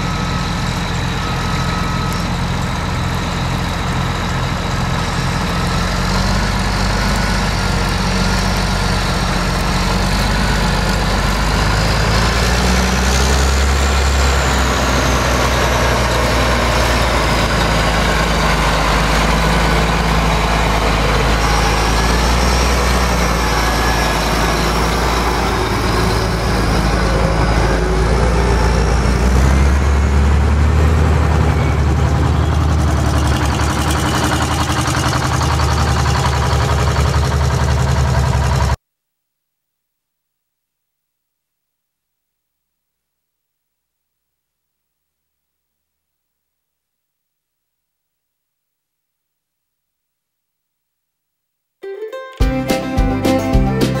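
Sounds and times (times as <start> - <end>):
faint high whine: 0.0 - 5.8
heavy diesel engine drone: 0.0 - 38.8.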